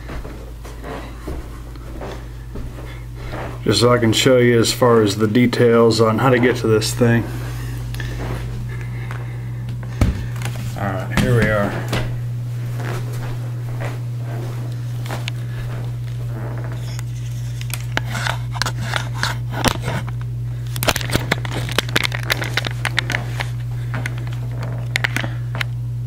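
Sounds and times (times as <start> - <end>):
steady low hum: 0.0 - 26.0
handling clicks and scrapes: 16.6 - 20.2.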